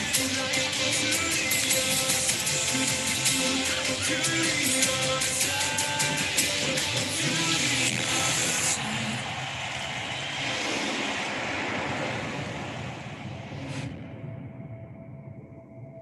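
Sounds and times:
crowd cheering and applauding: 2.3 - 13.0.

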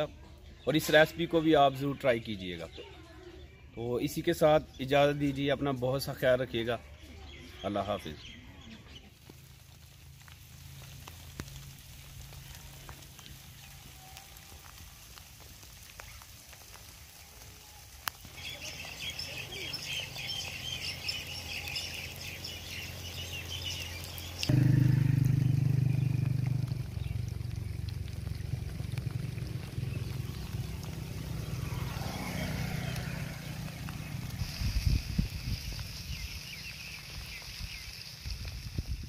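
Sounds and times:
birds chirping: 0.0 - 9.3, 18.1 - 38.6.

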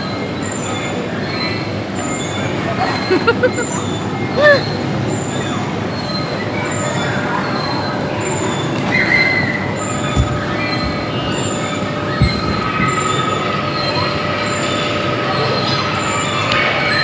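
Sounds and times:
indoor crowd hubbub: 0.0 - 17.0
dull thumps: 10.0 - 13.4.

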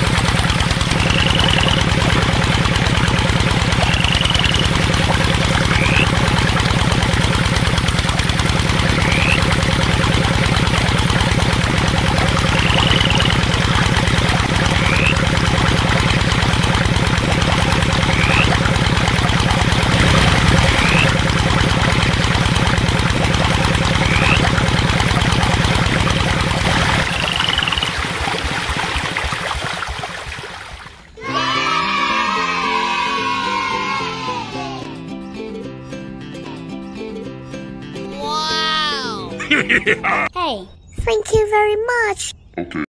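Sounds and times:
small engine idling: 0.0 - 30.4.

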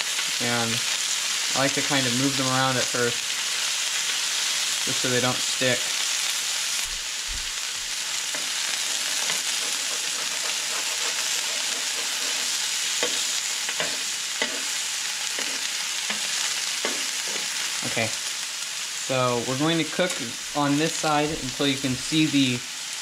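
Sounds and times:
fish sizzling in oil: 0.0 - 23.0
metal spatula scraping: 8.2 - 17.9.

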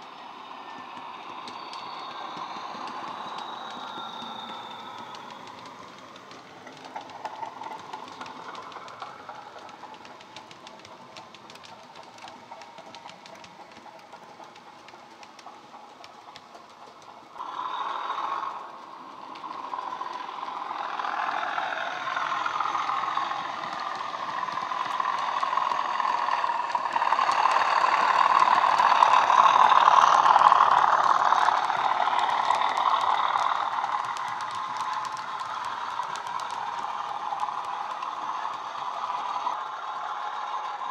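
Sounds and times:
turbocharger whistle: 0.0 - 5.8
model diesel engine sound: 17.3 - 40.9.

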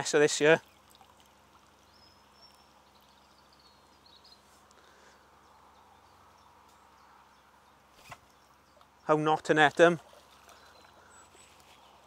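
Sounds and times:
faint lakeside ambience: 0.0 - 12.0.

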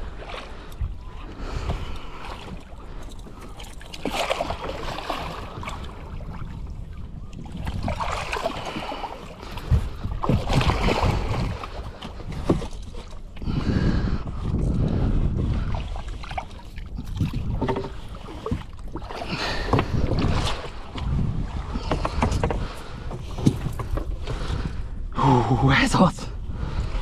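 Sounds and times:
water splashing: 1.5 - 13.6.

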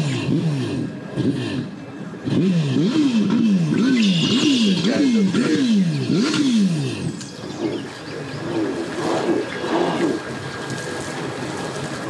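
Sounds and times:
jet ski engine revving: 0.0 - 12.0
water splashing: 6.8 - 12.0.

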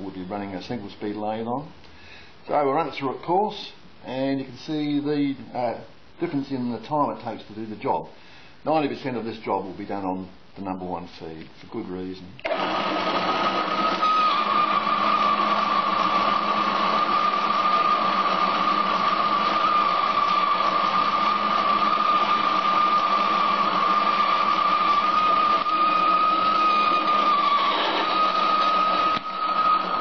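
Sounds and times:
metal lathe motor whine: 12.5 - 30.0.

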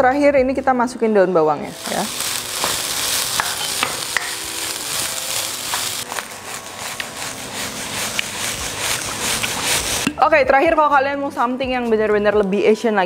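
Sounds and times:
fried rice sizzling in a wok: 1.8 - 10.1
spatula scraping a pan: 1.8 - 10.1.

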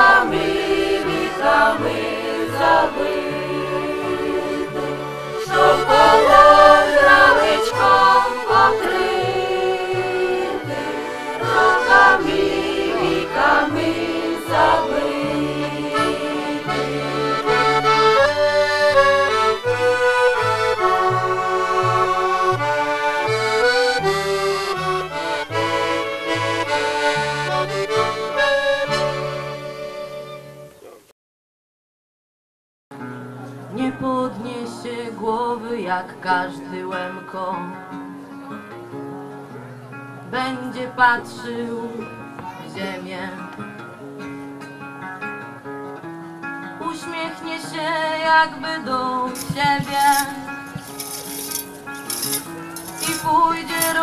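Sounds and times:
accordion playing folk tune: 0.0 - 30.8, 49.2 - 54.0.

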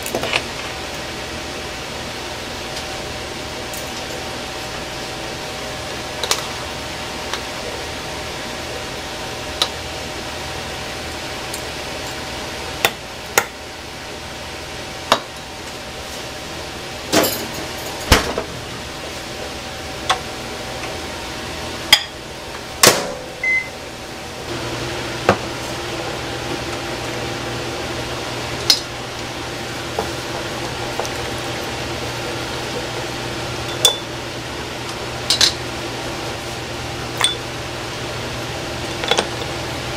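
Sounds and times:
microwave oven humming: 0.0 - 39.9
microwave beep: 23.3 - 23.8, 33.6 - 34.2, 37.2 - 37.5.

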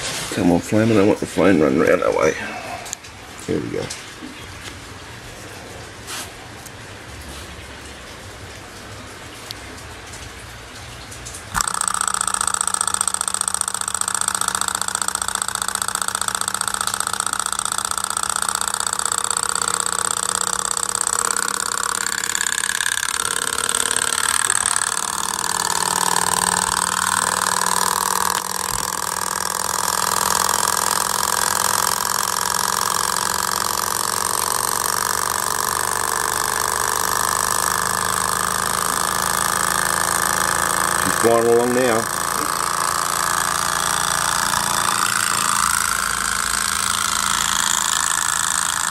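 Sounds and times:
stirling engine clatter: 10.8 - 48.9.

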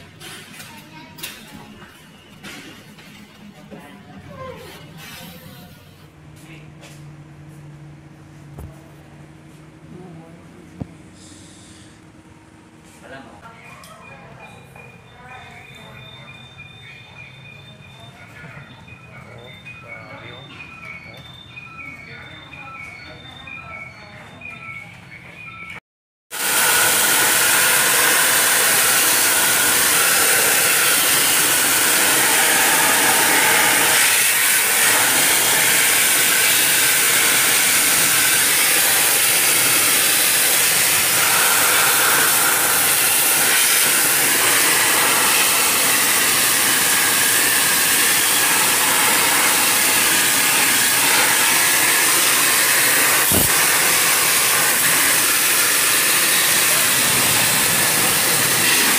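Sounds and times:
pressure washer spraying water: 26.3 - 58.9.

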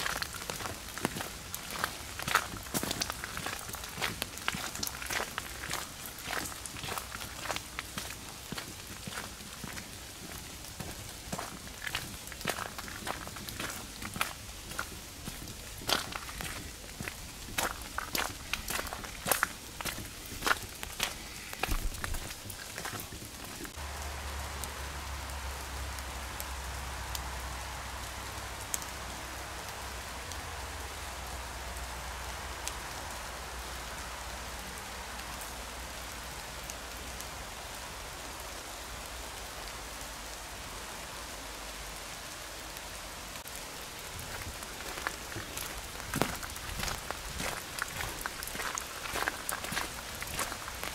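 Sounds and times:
footsteps on gravel: 0.0 - 23.8, 43.9 - 50.9
rain falling in forest: 0.0 - 50.9.

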